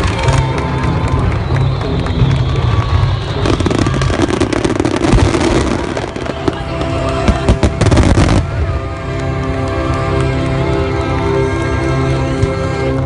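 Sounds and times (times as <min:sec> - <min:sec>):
fireworks bursts and crackling: 0:00.0 - 0:10.4
music playing: 0:00.0 - 0:13.0.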